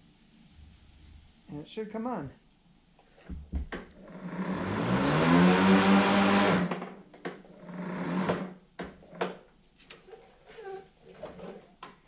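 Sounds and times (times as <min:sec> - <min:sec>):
lawn mower motor whining: 0:04.1 - 0:06.8, 0:07.7 - 0:08.5.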